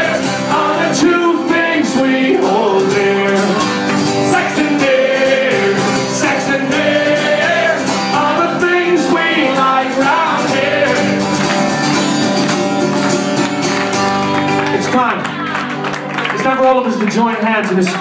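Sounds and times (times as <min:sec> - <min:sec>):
person singing: 0:00.0 - 0:11.3
acoustic guitar strumming: 0:00.0 - 0:16.0.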